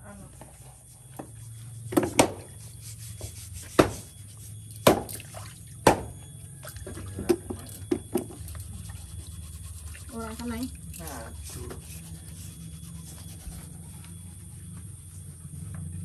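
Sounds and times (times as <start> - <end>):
sharp knocks: 4.8 - 5.2, 5.8 - 6.1
water splashing and dripping: 5.0 - 5.8.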